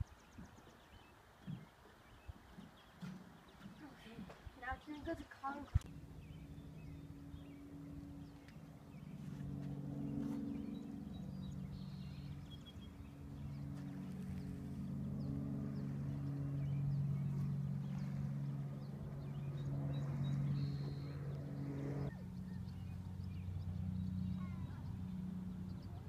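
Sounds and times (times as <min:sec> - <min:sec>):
low engine hum: 0:02.4 - 0:26.0
bird chirps: 0:10.1 - 0:14.4.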